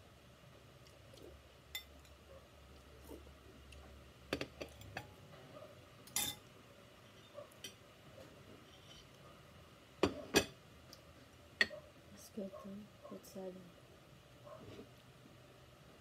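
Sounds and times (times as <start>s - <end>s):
metal spoon clinking on glass bowl: 6.1s - 6.4s.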